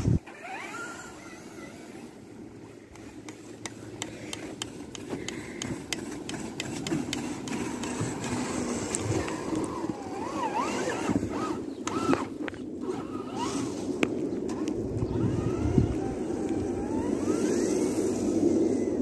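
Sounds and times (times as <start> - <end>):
toy truck electric motor whine: 0.2 - 2.1, 7.4 - 13.9, 15.1 - 19.0.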